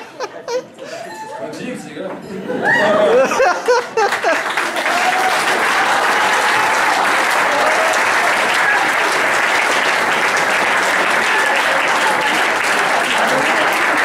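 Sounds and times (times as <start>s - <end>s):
large audience applauding: 3.5s - 14.0s.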